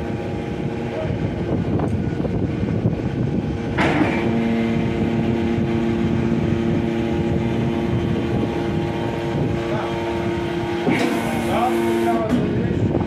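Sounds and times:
hydraulic drive hum: 0:00.0 - 0:13.0
scrap metal baler drone: 0:00.0 - 0:13.0
metal clank: 0:03.8 - 0:04.4.

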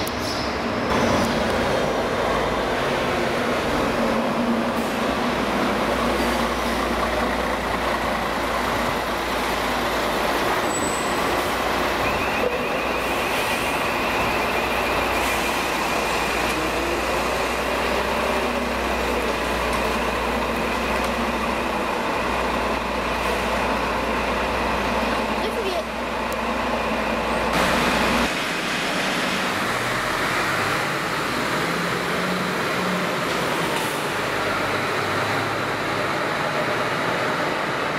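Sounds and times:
garbage truck diesel engine: 0:00.0 - 0:37.9.

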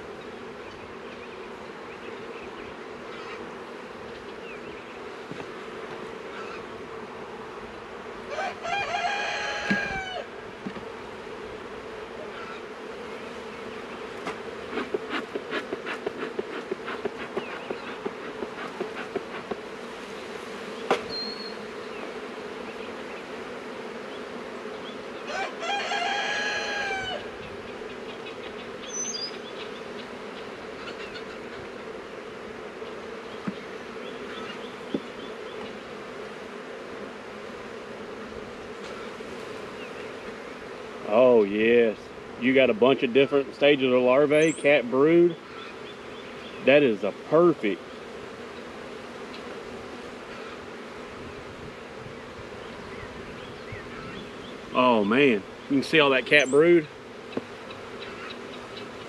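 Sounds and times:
honeybees buzzing: 0:00.0 - 0:59.0
rooster crowing: 0:08.3 - 0:10.3, 0:25.2 - 0:27.3.

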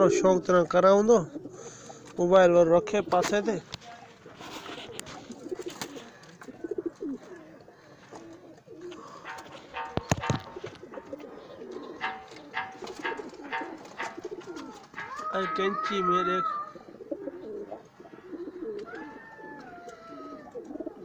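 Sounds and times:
pigeons cooing: 0:00.0 - 0:21.0
sharp knock: 0:09.3 - 0:10.7, 0:12.0 - 0:14.2.

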